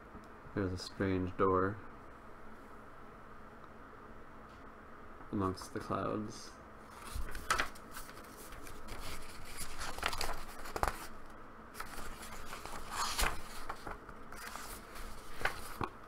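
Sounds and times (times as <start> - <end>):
paper crinkles: 6.9 - 15.9
paper pages turning: 6.9 - 16.0.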